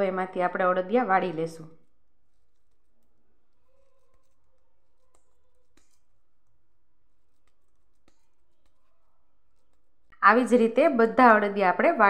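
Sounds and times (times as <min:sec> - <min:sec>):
hands pressing dough: 0:02.3 - 0:10.2.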